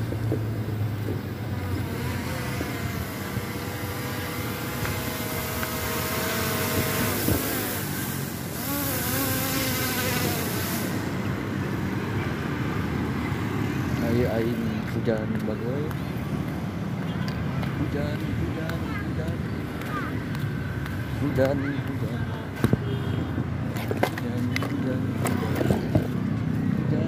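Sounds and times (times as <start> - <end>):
drone propellers buzzing: 0.0 - 13.8.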